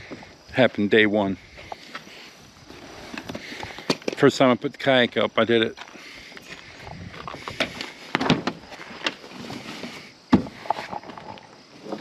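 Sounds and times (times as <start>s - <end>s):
knocks clicks and scraping: 5.8s - 12.0s.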